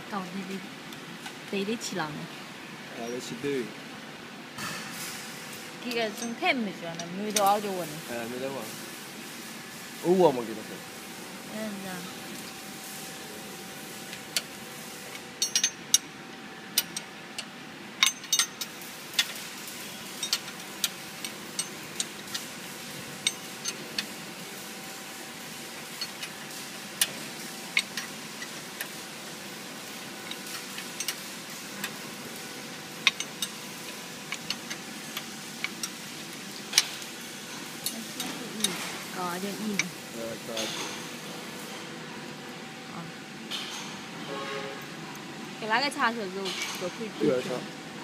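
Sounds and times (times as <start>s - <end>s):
machine mechanical hum: 0.0s - 48.0s
mechanism clicks and clacks: 16.8s - 24.3s, 25.8s - 29.1s, 29.8s - 32.2s, 33.0s - 41.0s.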